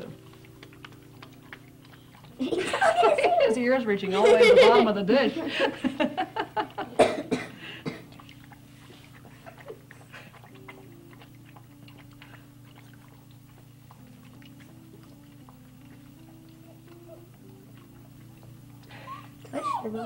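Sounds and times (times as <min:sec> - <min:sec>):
puppy lapping water: 0:00.0 - 0:20.0
people laughing: 0:02.4 - 0:07.0.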